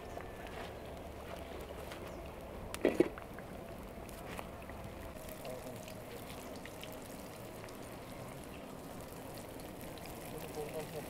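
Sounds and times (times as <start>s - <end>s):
hot oil sizzling in a pan: 5.1s - 11.0s.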